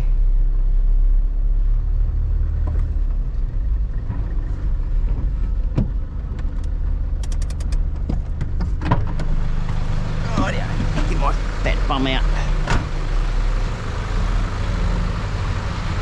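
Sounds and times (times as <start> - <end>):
vehicle engine running at low speed: 0.0 - 16.0
quick run of clicks: 6.6 - 8.5.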